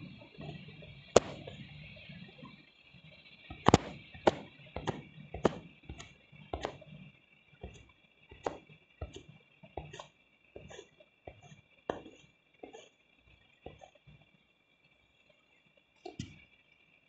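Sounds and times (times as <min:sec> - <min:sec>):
sharp irregular taps: 0:01.2 - 0:01.5, 0:03.5 - 0:06.8, 0:07.6 - 0:09.2, 0:09.8 - 0:12.8.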